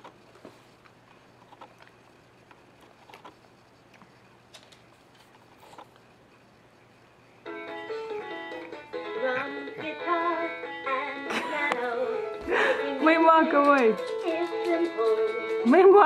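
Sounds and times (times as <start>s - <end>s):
electronic toy playing tune: 7.4s - 13.1s.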